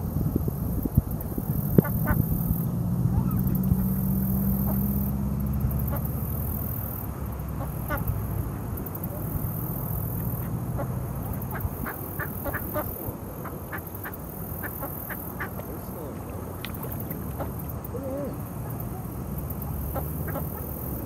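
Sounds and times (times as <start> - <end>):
low background rumble: 0.0 - 21.0
ducks quacking: 1.8 - 2.2, 4.6 - 5.0, 7.5 - 8.1, 10.2 - 21.0
duck wavering call: 3.1 - 5.1, 5.8 - 6.1, 7.5 - 8.1, 10.2 - 15.7, 17.2 - 21.0.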